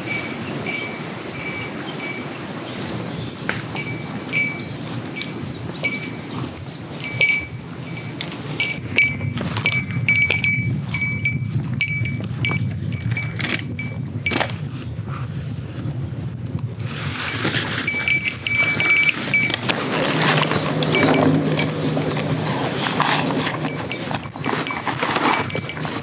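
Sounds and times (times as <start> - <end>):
camping gear jingling: 0.0 - 14.8, 16.8 - 26.0
gear rustling and clattering: 3.5 - 14.7, 16.8 - 26.0.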